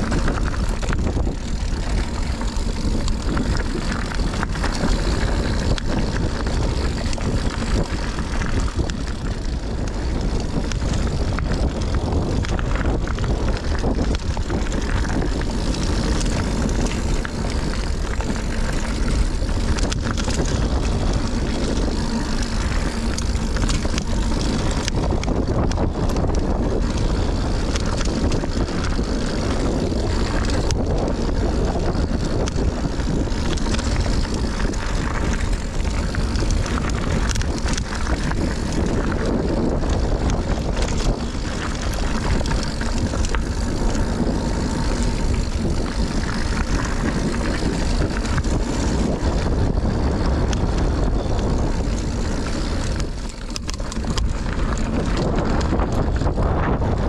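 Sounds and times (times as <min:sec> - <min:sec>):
bike chain and frame rattling: 0:00.0 - 0:57.0
tyres rolling on dirt trail: 0:00.0 - 0:57.0
wind buffeting microphone: 0:00.0 - 0:57.0.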